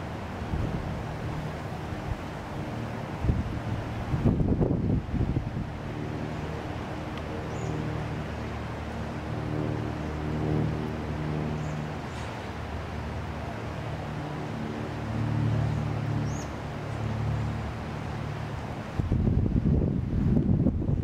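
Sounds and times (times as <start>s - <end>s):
wind buffeting microphone: 0.0s - 11.6s, 18.7s - 21.0s
low engine drone: 0.0s - 21.0s.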